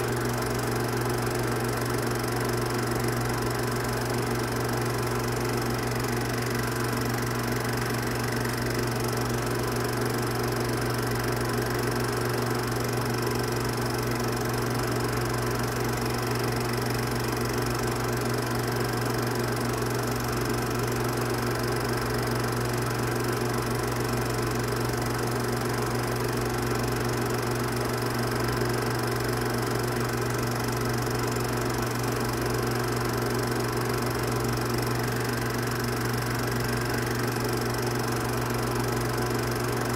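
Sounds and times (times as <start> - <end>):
film projector humming: 0.0 - 39.9.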